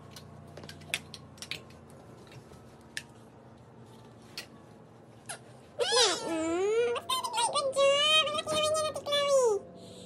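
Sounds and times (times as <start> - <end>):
toddler's high voice: 5.8 - 9.6.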